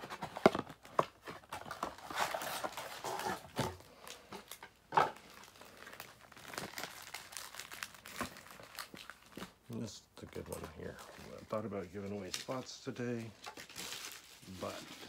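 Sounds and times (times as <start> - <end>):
foil wrappers crinkling: 0.0 - 15.0.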